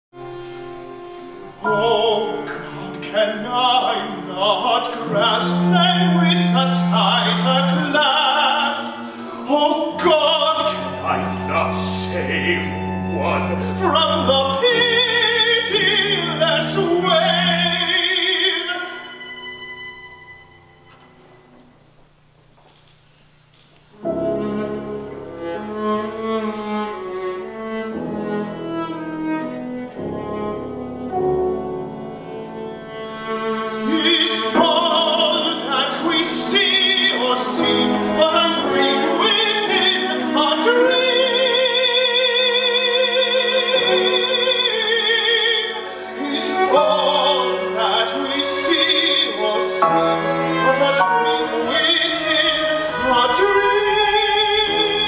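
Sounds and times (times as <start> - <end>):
bowed strings playing slowly: 0.2 - 21.6
man singing operatically: 1.6 - 19.3, 33.8 - 55.0.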